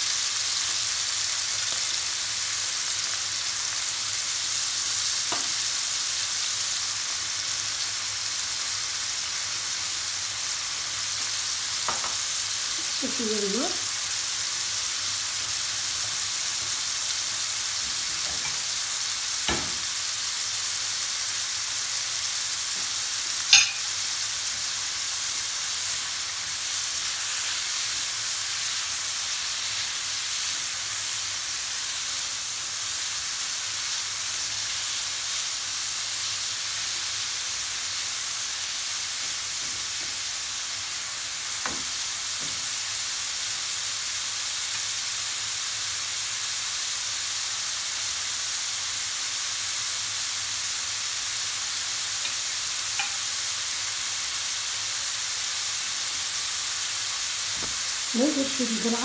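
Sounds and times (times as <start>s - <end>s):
shrimp sizzling in frying pan: 0.0s - 59.0s
spatula stirring in pan: 52.2s - 53.2s.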